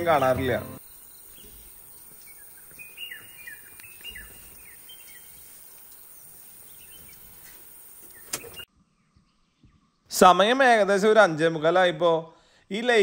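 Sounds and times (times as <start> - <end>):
bird chirping: 0.0 - 10.1.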